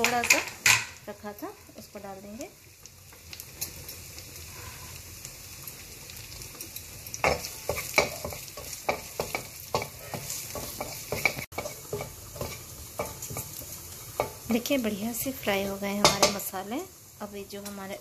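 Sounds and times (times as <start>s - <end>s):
vegetables sizzling in hot oil: 0.0s - 18.0s
spatula scraping and knocking pan: 7.2s - 14.7s, 16.0s - 16.5s.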